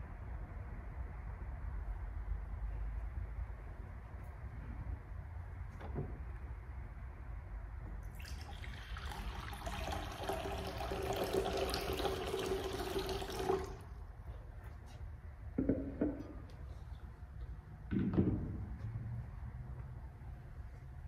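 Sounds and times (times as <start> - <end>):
water pouring into basin: 8.1 - 13.9.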